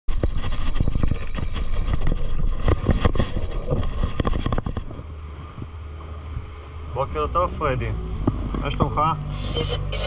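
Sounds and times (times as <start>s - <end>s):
knocks and rushing noise: 0.1s - 5.7s
boat engine humming: 0.1s - 10.0s.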